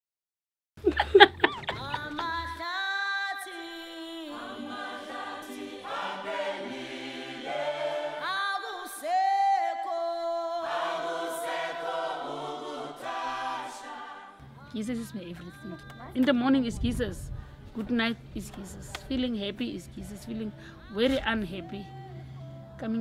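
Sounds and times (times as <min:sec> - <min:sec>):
choir singing a cappella: 0:01.6 - 0:16.2.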